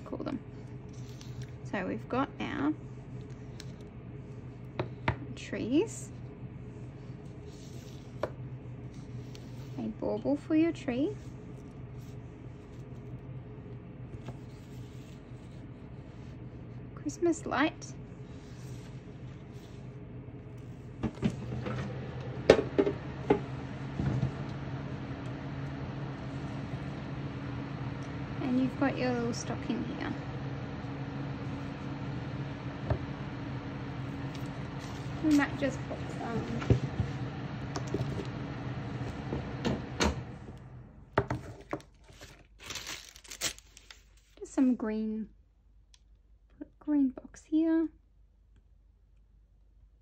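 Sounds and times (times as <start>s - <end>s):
low machine hum: 0.0s - 50.0s
plastic rustle: 41.4s - 44.4s.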